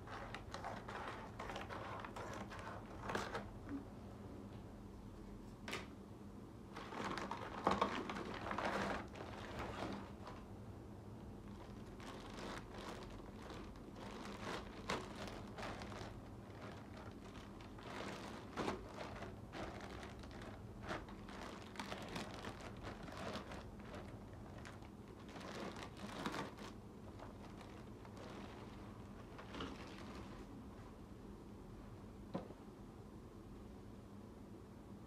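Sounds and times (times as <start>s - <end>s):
plastic bag crinkling: 6.7s - 10.5s, 11.4s - 30.6s.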